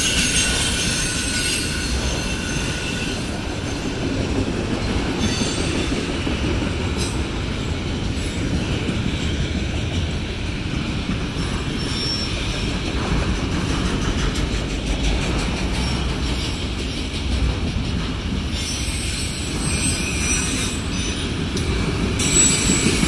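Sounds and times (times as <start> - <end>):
train wheels rumbling on rails: 0.0 - 23.0
faint high wheel squeals: 11.4 - 12.6, 18.5 - 21.4, 22.2 - 23.0.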